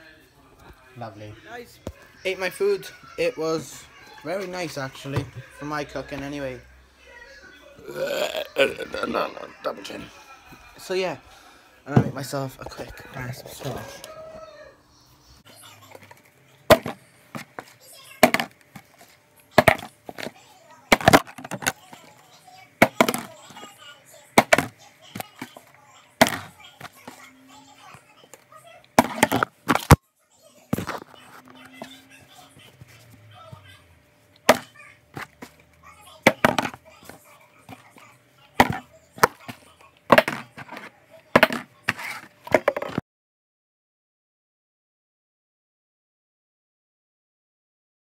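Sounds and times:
objects knocking on worktop: 11.9 - 12.3, 16.7 - 19.0, 19.6 - 20.3, 20.9 - 21.8, 22.8 - 23.6, 24.4 - 25.6, 26.2 - 26.5, 29.0 - 30.0, 34.5 - 35.5, 36.2 - 36.8, 38.6 - 39.5, 40.1 - 40.8, 41.4 - 43.0
plastic bottle landing on counter: 18.2 - 18.5, 22.8 - 23.3.

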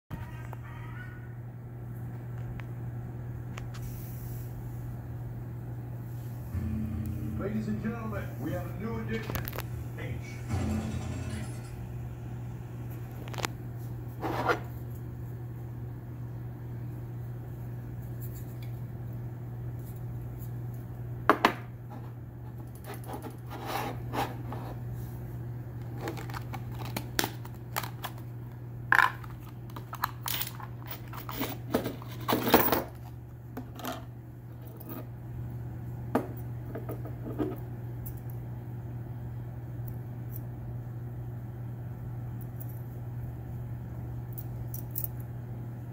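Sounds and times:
steady low hum: 0.1 - 45.9
hands handling plastic and metal parts: 25.8 - 28.2.

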